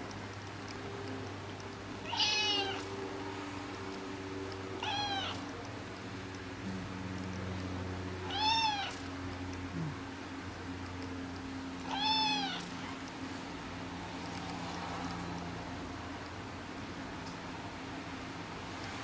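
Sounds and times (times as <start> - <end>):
kitten meowing: 2.0 - 2.9, 4.8 - 5.4, 8.2 - 9.0, 11.8 - 13.0.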